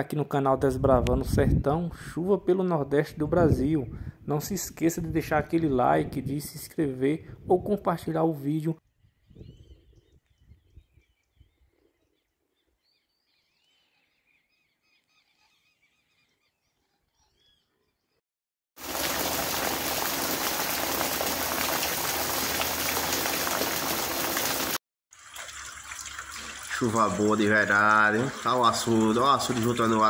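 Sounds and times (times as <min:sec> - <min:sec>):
heavy rain pouring: 0:18.8 - 0:24.8.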